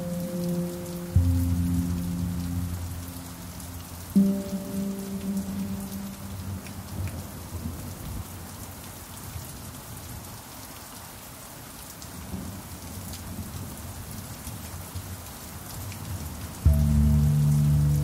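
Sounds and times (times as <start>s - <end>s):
steady rain falling: 0.0s - 18.0s
low rumble: 1.1s - 4.2s, 16.7s - 18.0s.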